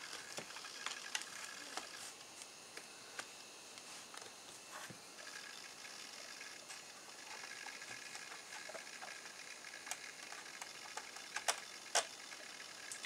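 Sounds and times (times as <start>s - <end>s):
laptop drive clicks: 6.7s - 12.2s.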